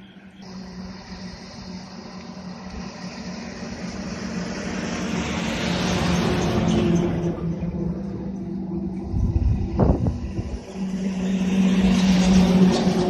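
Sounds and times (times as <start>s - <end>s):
road noise rushing: 0.0s - 13.0s
truck diesel engine droning: 0.0s - 13.0s.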